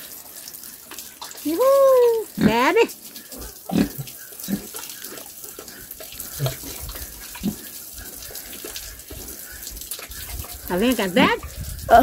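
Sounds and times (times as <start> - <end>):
water sloshing and splashing: 0.0 - 12.0
pig grunting low: 3.4 - 4.8.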